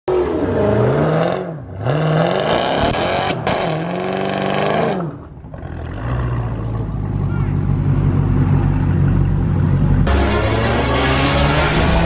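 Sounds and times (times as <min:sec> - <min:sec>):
car engines revving hard: 0:00.1 - 0:06.9, 0:10.0 - 0:12.0.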